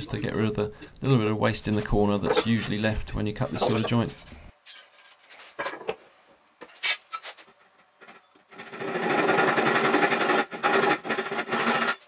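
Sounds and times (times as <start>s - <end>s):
hand saw fast rasping buzz: 8.6s - 12.0s.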